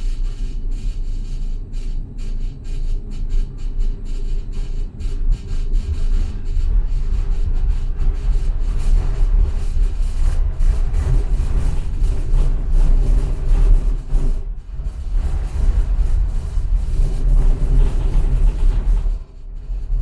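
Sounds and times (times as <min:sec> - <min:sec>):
tram wheels running on rails: 0:00.0 - 0:20.0.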